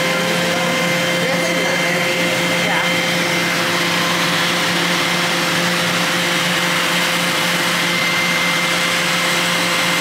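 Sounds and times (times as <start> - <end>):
machine whirring and humming: 0.0 - 10.0.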